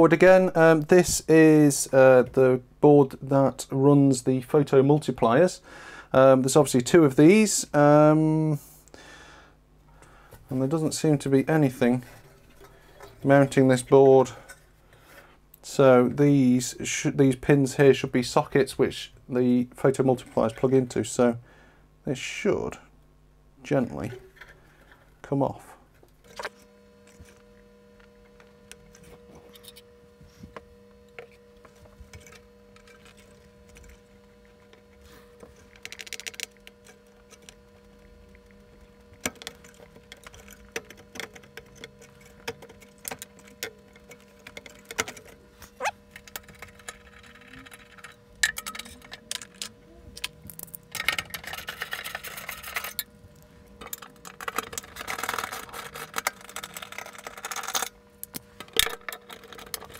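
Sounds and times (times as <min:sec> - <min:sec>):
faint steady hum: 0:00.0 - 0:59.9
rustling and clattering of handling: 0:10.3 - 0:15.3, 0:28.3 - 0:59.9
small clicks and metallic rattles: 0:35.5 - 0:45.4, 0:53.8 - 0:59.9.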